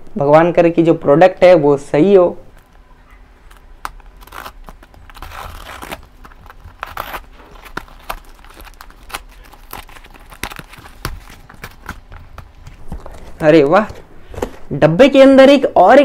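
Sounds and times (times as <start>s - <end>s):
cardboard tearing: 3.4s - 14.0s.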